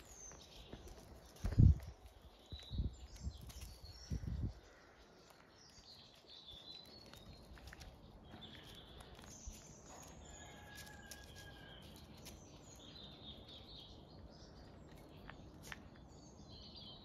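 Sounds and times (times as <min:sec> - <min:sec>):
birds chirping and singing: 0:00.0 - 0:17.0.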